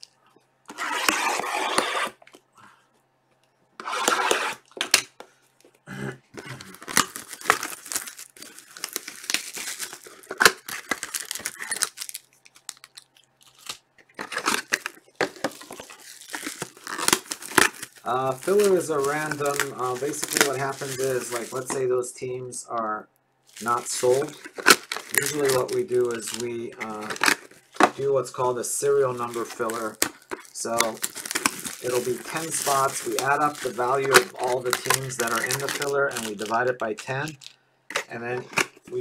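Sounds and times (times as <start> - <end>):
plastic wrap tearing: 0.7 - 2.4, 6.4 - 21.8, 23.5 - 38.9
plastic wrap crackling: 6.4 - 21.8, 23.5 - 39.0.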